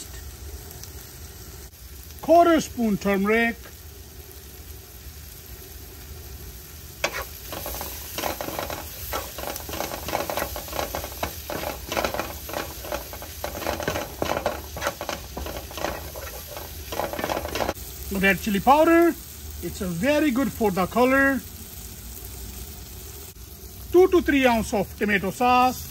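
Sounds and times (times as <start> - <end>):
masala sizzling in a pan: 0.0 - 25.9
utensil scraping a pan: 7.0 - 17.8.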